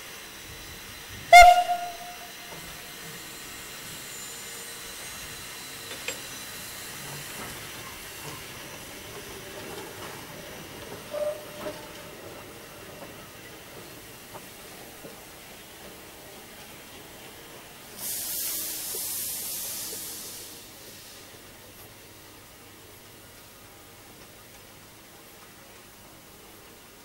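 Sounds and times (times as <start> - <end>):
faint short tone: 1.3 - 2.8
steam locomotive whistle blast: 1.3 - 3.5, 11.1 - 11.8
steam hissing: 13.3 - 22.6.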